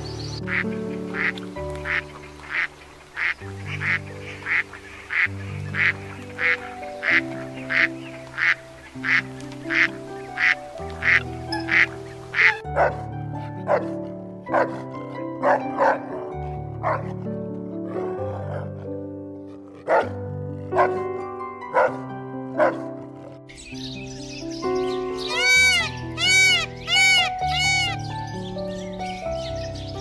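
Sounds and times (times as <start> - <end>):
ducks quacking: 0.0 - 13.0, 24.9 - 28.0
background music: 0.0 - 30.0
dog barking: 12.7 - 13.0, 13.6 - 17.1, 19.8 - 21.0, 21.7 - 22.0, 22.6 - 22.9.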